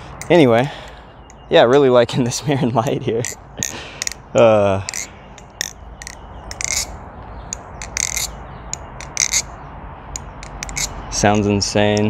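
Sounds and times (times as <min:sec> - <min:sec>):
metal knife handles clicking: 0:03.2 - 0:04.2, 0:04.9 - 0:06.9, 0:07.5 - 0:09.5, 0:10.2 - 0:11.0.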